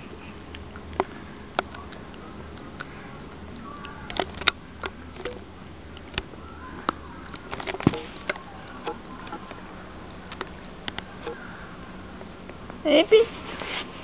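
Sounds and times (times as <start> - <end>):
steady low hum: 0.0 - 14.0
handling clicks and rustles: 0.5 - 11.5.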